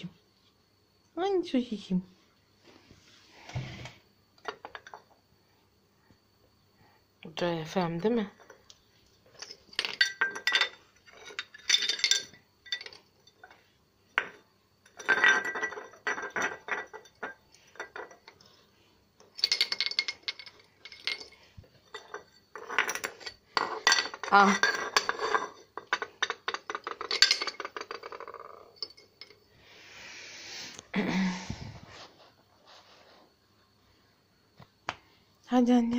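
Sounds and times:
ceramic shards clinking: 9.3s - 13.6s, 14.2s - 18.4s, 19.3s - 29.4s.

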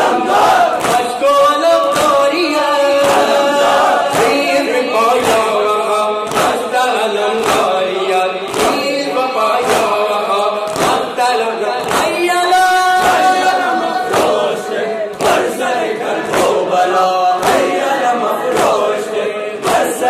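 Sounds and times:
men chanting: 0.0s - 20.0s
person singing into a microphone: 0.0s - 20.0s
hands slapping chests: 0.3s - 1.2s, 3.0s - 3.4s, 6.2s - 6.7s, 7.4s - 7.9s, 8.5s - 10.0s, 10.6s - 12.2s, 13.0s - 16.6s, 17.4s - 17.9s.

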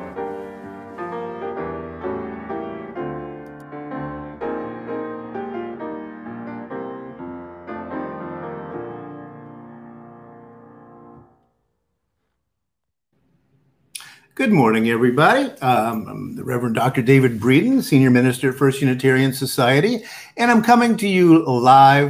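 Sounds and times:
piano music: 0.0s - 11.8s.

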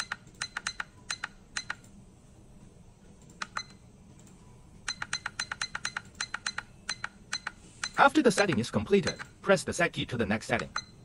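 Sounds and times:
push-button keys clicking: 0.0s - 1.9s, 3.2s - 9.3s.

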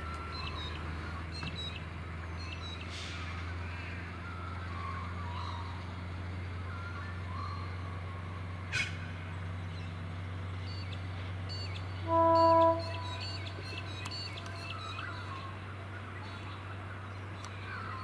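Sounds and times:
low engine hum: 0.0s - 18.0s
birds chirping: 10.6s - 18.0s
train horn blast: 12.0s - 13.4s.

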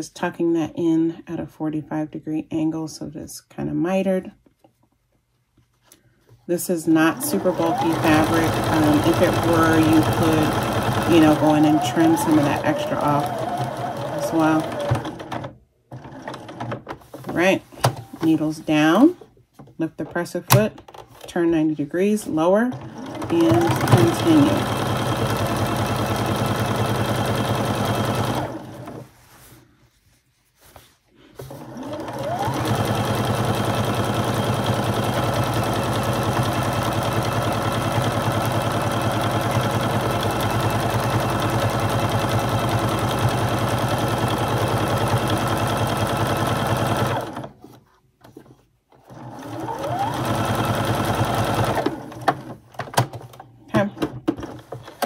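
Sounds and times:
sewing machine whine: 7.0s - 16.8s, 22.7s - 29.0s, 31.4s - 47.6s, 49.0s - 52.6s.

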